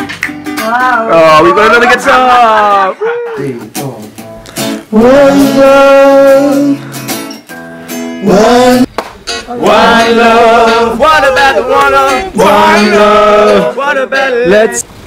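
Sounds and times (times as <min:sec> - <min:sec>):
acoustic guitar: 0:00.0 - 0:15.0
man singing: 0:04.8 - 0:06.9, 0:08.2 - 0:14.9.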